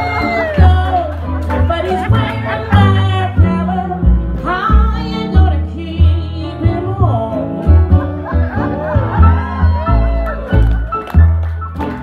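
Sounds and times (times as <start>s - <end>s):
woman singing: 0.0s - 7.7s
electric guitar: 0.0s - 12.0s
plucked upright bass: 0.0s - 12.0s.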